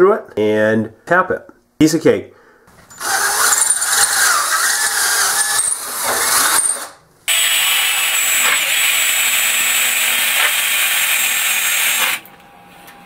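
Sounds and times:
grinder whining: 2.9s - 12.4s
cordless drill boring metal: 3.0s - 12.3s.

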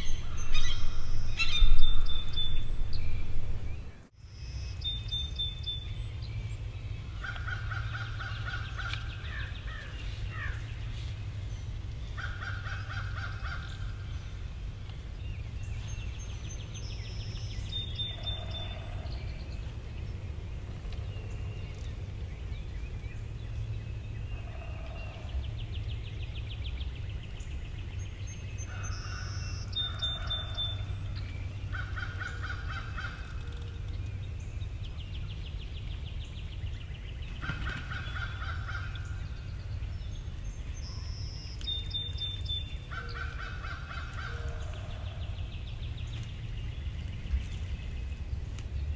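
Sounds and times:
low rumble: 0.0s - 4.1s
songbird calls: 0.0s - 48.9s.

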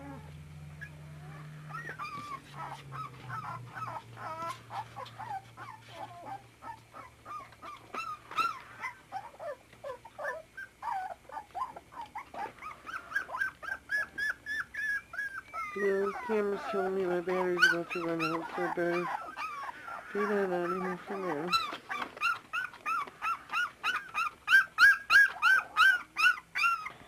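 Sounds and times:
puppies whining: 0.0s - 27.0s.

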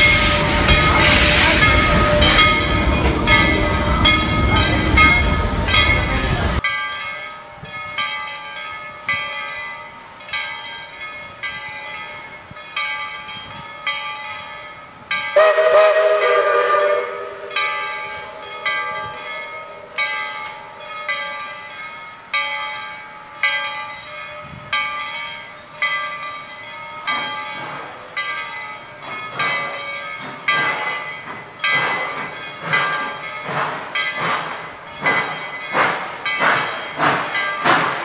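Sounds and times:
steam whistle blast: 0.0s - 4.1s, 15.4s - 19.7s
locomotive bell ringing: 0.0s - 38.0s.

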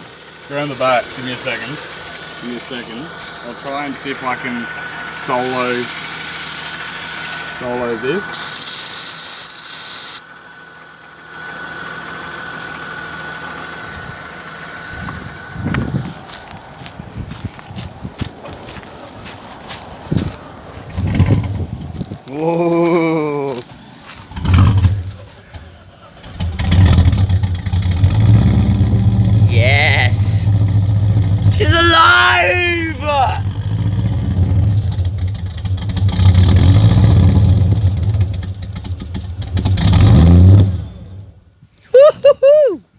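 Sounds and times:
car engine running: 0.0s - 41.6s
engine starter cranking: 24.3s - 28.0s.

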